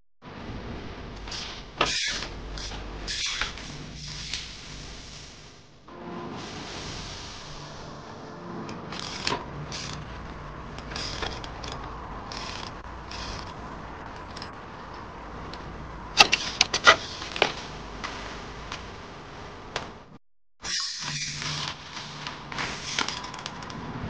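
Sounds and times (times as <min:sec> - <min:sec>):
bike clicking and creaking: 0:01.1 - 0:04.6, 0:08.7 - 0:18.9, 0:20.7 - 0:24.0.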